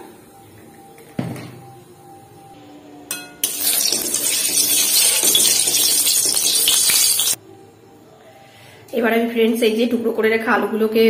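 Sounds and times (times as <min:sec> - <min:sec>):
spatula clinking on pan: 0:03.1 - 0:07.4
oil sizzling in a pan: 0:03.4 - 0:07.4.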